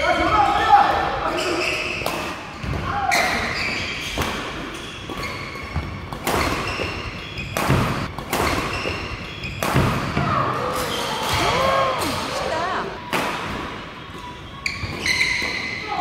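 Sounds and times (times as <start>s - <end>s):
shoes squeaking: 1.2s - 11.6s, 13.9s - 16.0s
racket striking shuttlecock: 6.1s - 10.3s.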